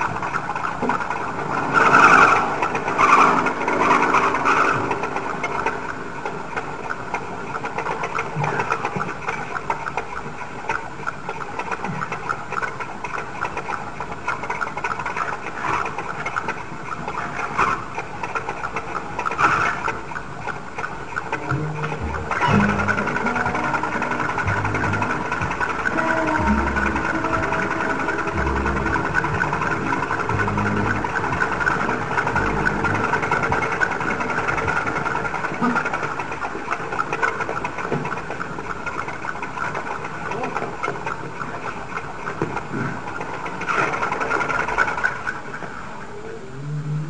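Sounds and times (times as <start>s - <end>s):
moped two-stroke engine buzzing: 0.0s - 10.0s, 11.8s - 45.6s
moped engine buzzing: 21.1s - 38.2s.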